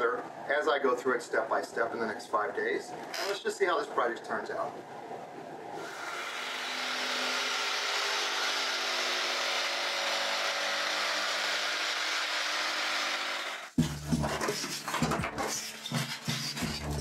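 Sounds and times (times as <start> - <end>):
electric jigsaw cutting foam board: 5.8 - 13.8.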